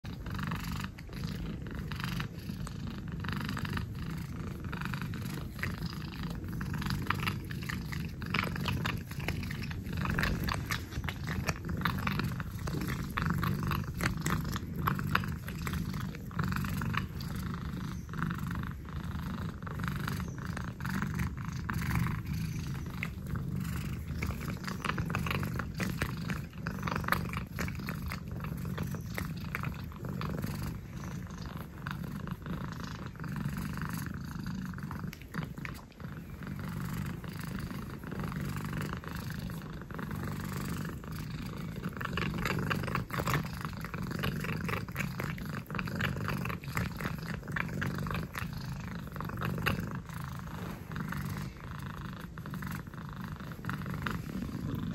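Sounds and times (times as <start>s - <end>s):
cat purring: 0.0s - 54.9s.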